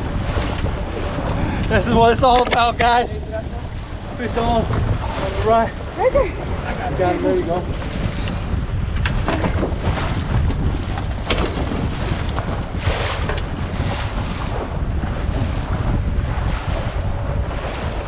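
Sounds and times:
waves washing against boat hull: 0.0s - 18.0s
wind buffeting microphone: 0.0s - 18.0s.

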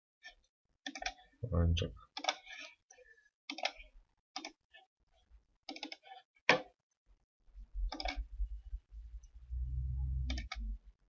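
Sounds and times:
computer mouse clicks: 0.2s - 1.2s, 2.2s - 2.4s, 3.5s - 4.6s, 5.7s - 6.1s, 7.9s - 8.3s, 10.2s - 10.8s
low rumble: 7.8s - 10.9s.

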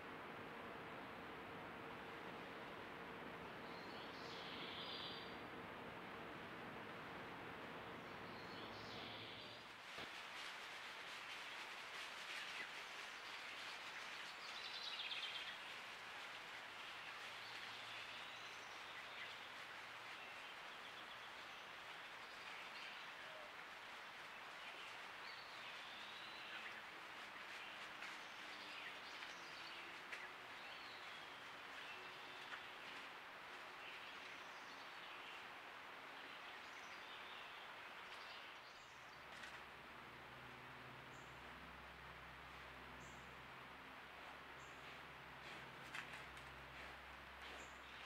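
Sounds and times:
steady outdoor hiss: 0.0s - 48.0s
birds chirping: 42.4s - 48.0s.

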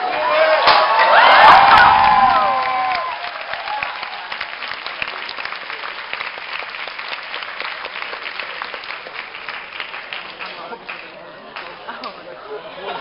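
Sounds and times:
shouted cheers: 0.0s - 4.5s
audience applauding: 1.0s - 11.8s.

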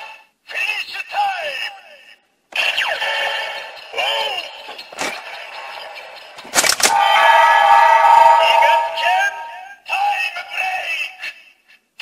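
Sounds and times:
synthesized sung chant: 2.6s - 9.9s.

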